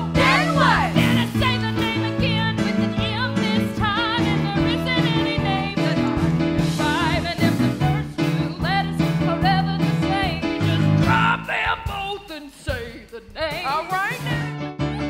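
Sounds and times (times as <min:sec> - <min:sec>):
women singing with vibrato: 0:00.0 - 0:11.0
live band playing: 0:00.0 - 0:15.0.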